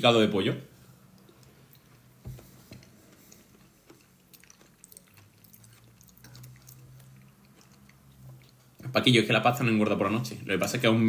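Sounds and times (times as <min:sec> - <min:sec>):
low steady hum: 0:00.0 - 0:11.0
soft chewing with mouth clicks: 0:00.8 - 0:09.0.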